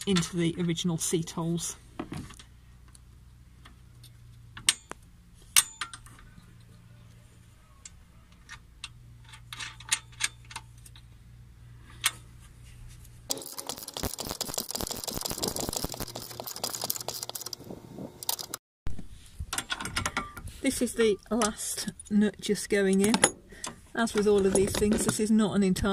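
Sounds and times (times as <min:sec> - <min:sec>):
rapid clicking and rattling: 0:13.3 - 0:18.6.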